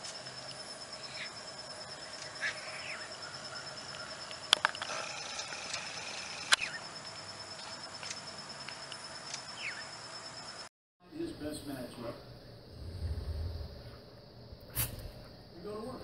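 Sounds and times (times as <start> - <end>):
high-pitched insect trill: 0.0 - 10.7
bird chirps: 0.9 - 7.0, 9.5 - 10.0.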